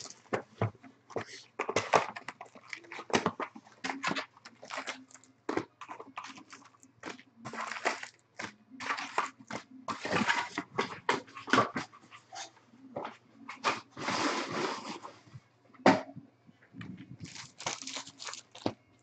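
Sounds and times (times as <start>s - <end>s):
plastic wrap tearing and crinkling: 0.0s - 0.2s, 5.9s - 8.2s, 17.2s - 18.8s.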